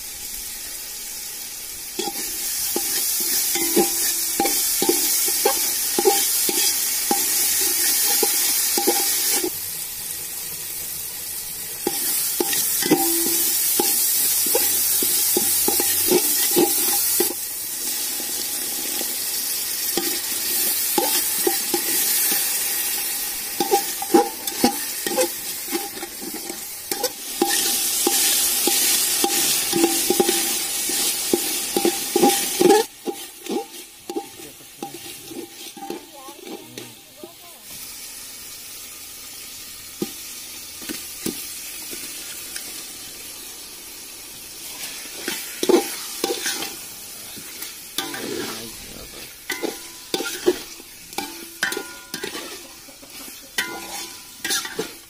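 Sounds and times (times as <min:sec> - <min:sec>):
food sizzling in hot oil: 0:00.0 - 0:55.0
metal spatula scraping pot: 0:02.0 - 0:09.5, 0:23.6 - 0:37.0, 0:44.8 - 0:46.8, 0:48.0 - 0:48.8, 0:49.5 - 0:55.0.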